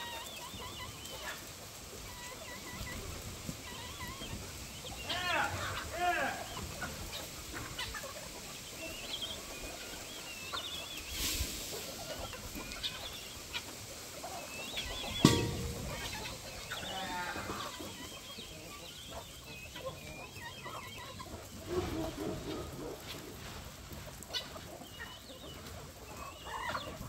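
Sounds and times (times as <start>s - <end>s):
chickens clucking: 0.0s - 27.0s
sharp knock: 15.2s - 16.2s.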